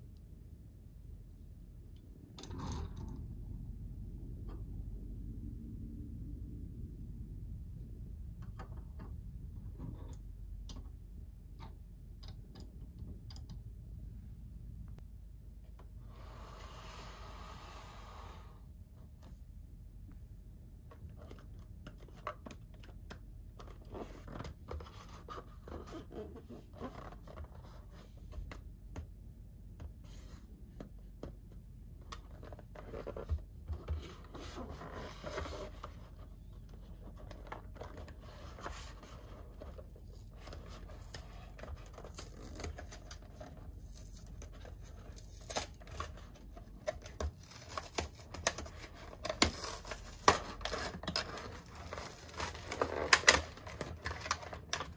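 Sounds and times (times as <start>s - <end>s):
packaging tearing and crinkling: 43.8s - 46.0s, 47.3s - 54.9s.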